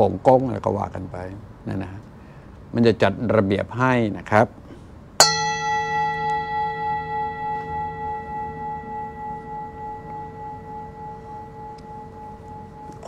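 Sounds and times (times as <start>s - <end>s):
metal bell ringing: 5.2s - 13.0s.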